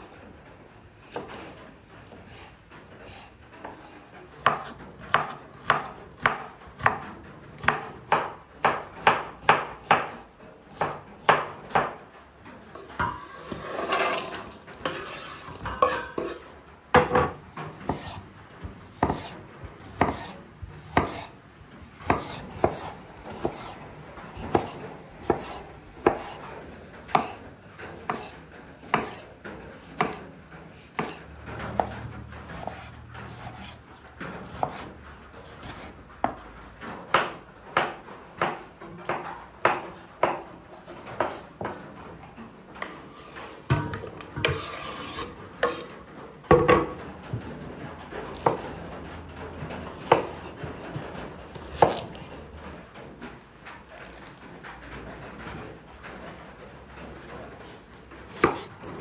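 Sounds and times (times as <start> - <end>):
knife chopping on wooden board: 4.4 - 12.0, 17.0 - 18.2, 18.8 - 21.3, 21.9 - 23.8, 24.4 - 26.4, 27.1 - 27.4, 28.0 - 29.3, 29.9 - 30.2, 31.0 - 33.8, 34.4 - 36.4, 43.4 - 45.9, 48.3 - 48.7, 50.0 - 50.5, 51.5 - 52.2, 58.2 - 59.0.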